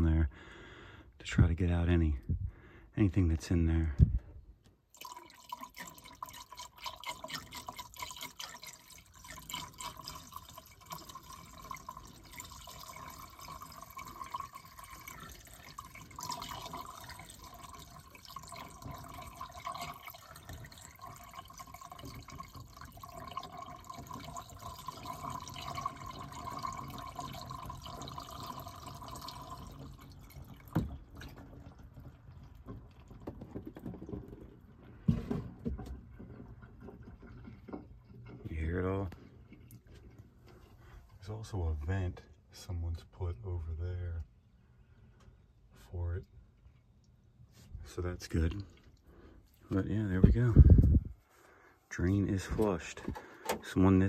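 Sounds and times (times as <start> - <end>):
water pouring into drain: 4.9 - 41.1.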